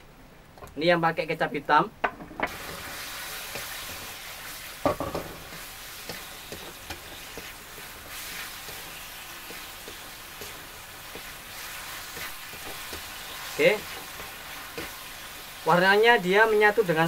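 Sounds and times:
spatula scraping a wok: 2.5s - 15.6s
meat sizzling in a wok: 2.5s - 17.0s.

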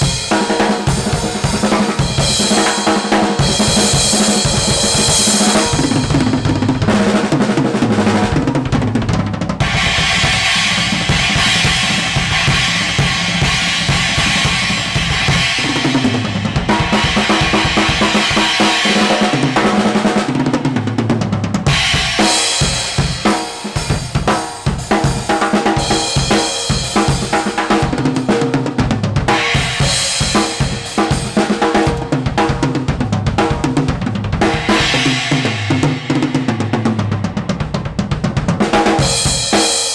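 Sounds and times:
crash and ride cymbals ringing: 9.6s - 19.7s.

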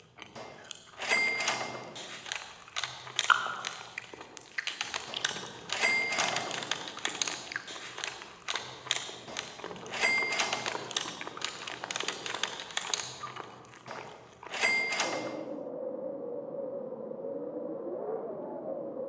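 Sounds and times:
cash register keys and drawer clatter: 0.3s - 3.8s, 4.8s - 15.5s
cash register bell ding: 1.0s - 2.0s, 5.8s - 6.6s, 9.9s - 10.8s, 14.5s - 15.5s.

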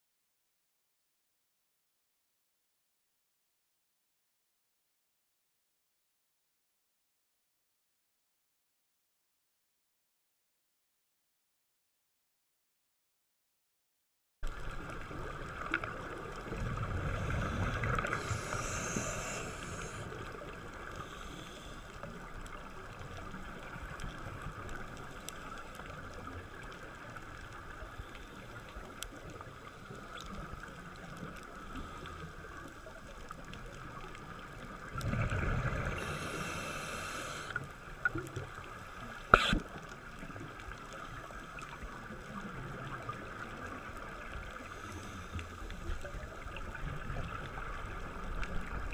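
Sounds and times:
underwater hiss: 15.6s - 22.6s, 31.2s - 33.4s, 34.2s - 41.8s, 42.9s - 46.8s
regulator exhale bubbles: 16.4s - 21.9s, 35.0s - 38.4s, 39.0s - 39.8s.

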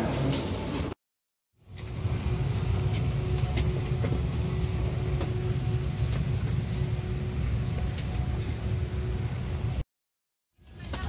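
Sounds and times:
cabin air system hum: 1.7s - 9.8s.

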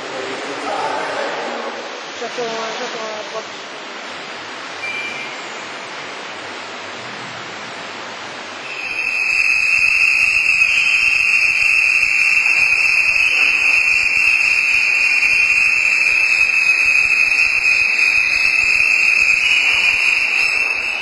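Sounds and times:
steady high-pitched tone: 4.8s - 6.0s, 8.6s - 21.0s.

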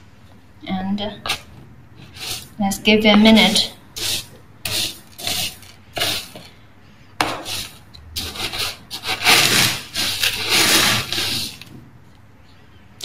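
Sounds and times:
scoop raking through cat litter: 1.3s - 2.6s, 3.2s - 6.5s, 7.3s - 11.8s.

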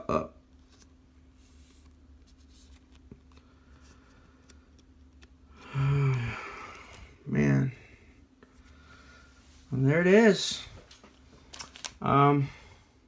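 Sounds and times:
trading cards and sleeves rustling: 0.6s - 5.4s, 10.5s - 12.2s
person murmuring: 5.6s - 7.8s.

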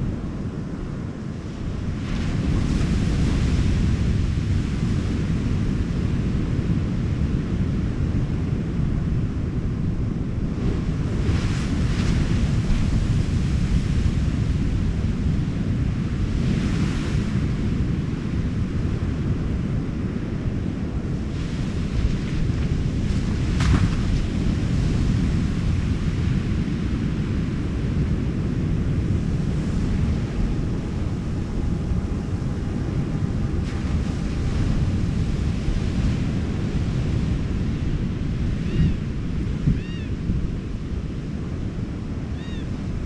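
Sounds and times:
ocean surf: 0.0s - 43.0s
wind buffeting microphone: 0.0s - 43.0s.

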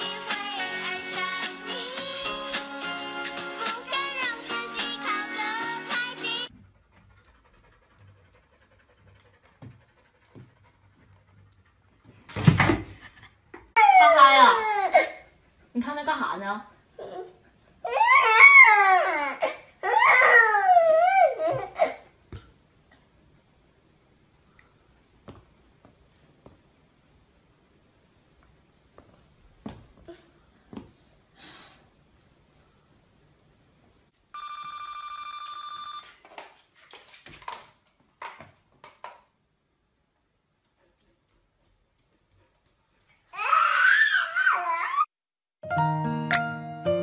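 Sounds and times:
toddler crying: 13.8s - 15.3s, 17.0s - 22.0s, 43.3s - 45.1s.

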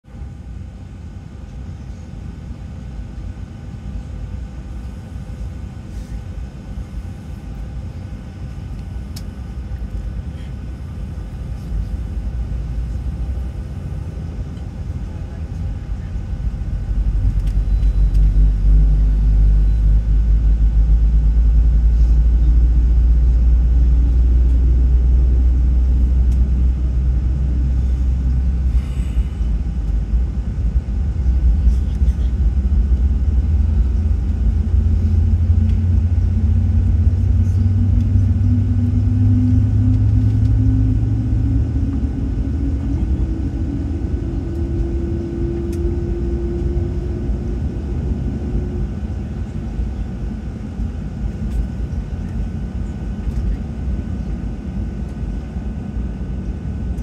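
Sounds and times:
aircraft cabin rumble and hum: 0.0s - 57.0s.

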